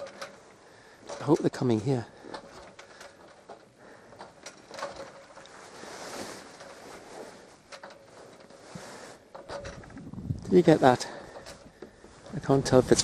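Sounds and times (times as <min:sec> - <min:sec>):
small clicks and knocks: 0:00.0 - 0:05.6, 0:07.6 - 0:08.7, 0:09.3 - 0:10.1.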